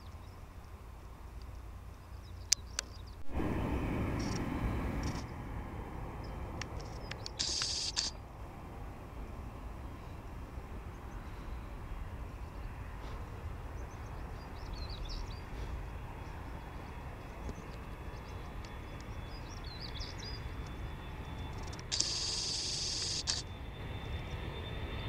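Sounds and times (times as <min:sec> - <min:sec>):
jet engines rumbling: 0:00.0 - 0:25.0
birds chirping: 0:01.9 - 0:03.3, 0:09.5 - 0:23.4.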